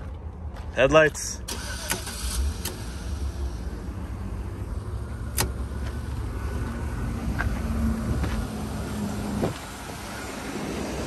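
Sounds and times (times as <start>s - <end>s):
steady low rumble: 2.2s - 11.0s
dashboard switch click: 5.3s - 5.6s.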